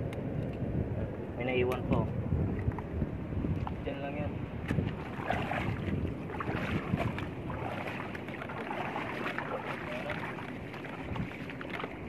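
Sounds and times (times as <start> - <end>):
people wading through splashing water: 4.8 - 12.0.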